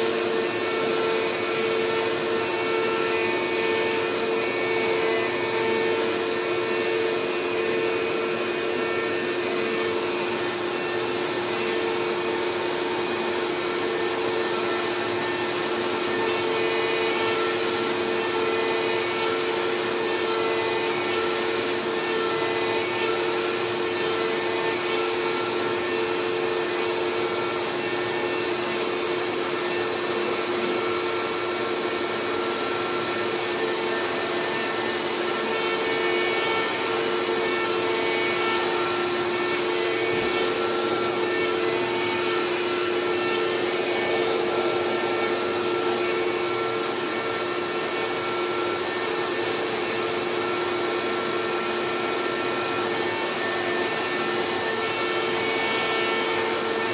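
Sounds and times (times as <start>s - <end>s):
router spindle whine: 0.0s - 56.9s.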